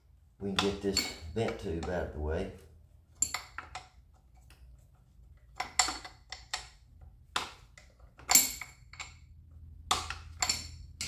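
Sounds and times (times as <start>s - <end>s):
metal hand tools clinking: 0.5s - 2.0s, 10.0s - 11.0s.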